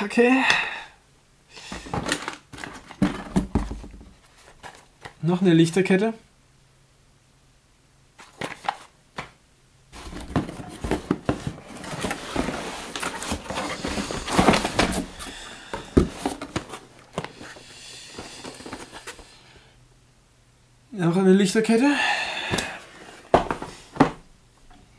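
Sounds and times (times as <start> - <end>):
cardboard scraping and rustling: 10.0 - 19.4.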